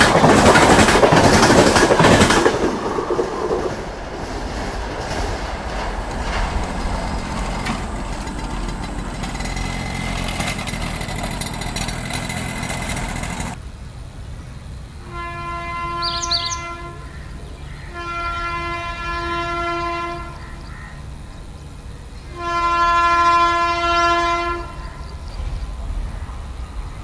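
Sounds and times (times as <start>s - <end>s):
passing train running noise: 0.0s - 27.0s
electric locomotive horn blasts: 6.2s - 13.6s, 15.0s - 20.8s, 22.3s - 25.1s.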